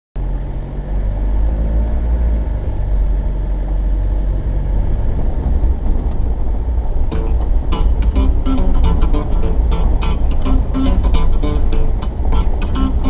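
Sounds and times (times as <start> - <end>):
vehicle engine and tyre rumble: 0.2 - 13.0.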